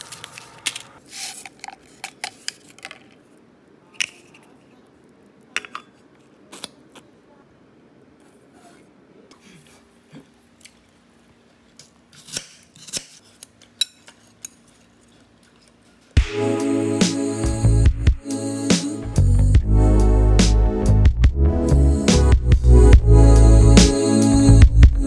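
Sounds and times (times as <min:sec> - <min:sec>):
music: 0:16.2 - 0:25.0.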